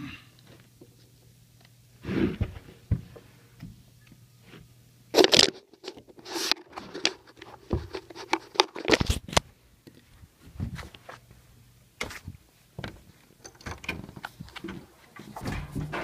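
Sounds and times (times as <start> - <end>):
faint low hum: 8.9 - 16.0.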